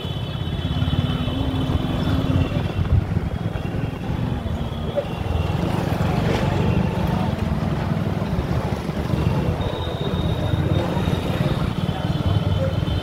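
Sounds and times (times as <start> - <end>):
wind rushing over microphone: 1.7 - 4.1.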